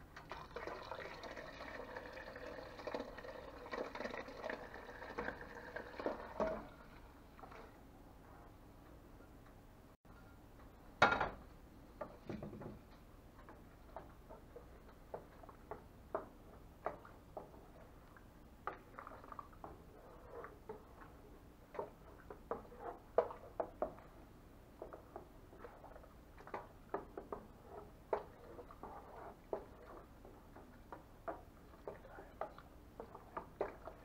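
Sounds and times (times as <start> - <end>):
utensil scraping a metal pot: 27.3 - 30.1.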